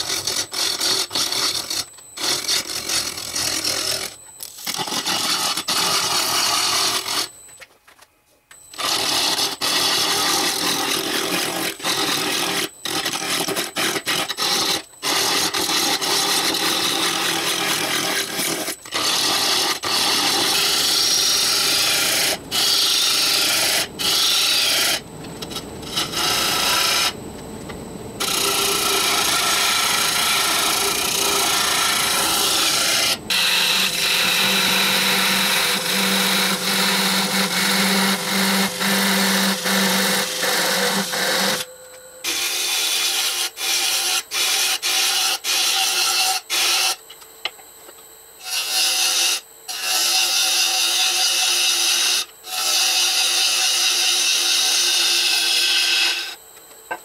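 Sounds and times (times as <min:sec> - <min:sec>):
steady low hum: 0:00.0 - 0:45.1
lathe gouge scraping wood: 0:08.8 - 0:27.2, 0:28.2 - 0:46.9, 0:48.4 - 0:56.4.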